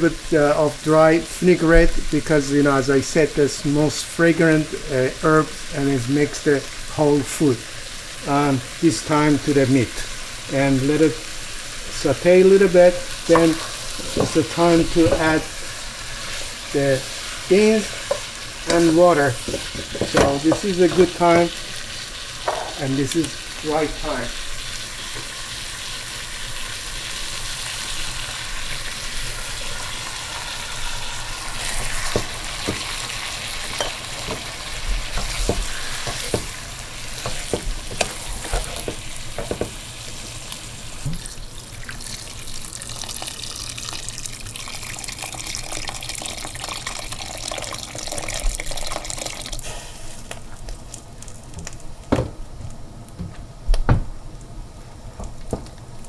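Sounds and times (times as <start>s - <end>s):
meat sizzling in a pot: 0.0s - 52.1s
water pouring: 41.1s - 49.6s.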